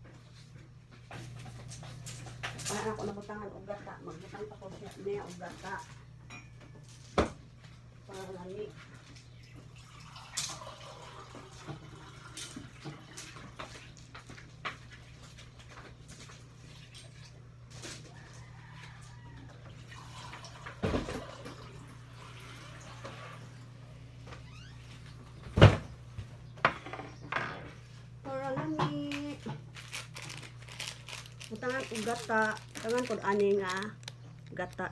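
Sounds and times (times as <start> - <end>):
dishes and utensils clattering: 6.3 - 7.1.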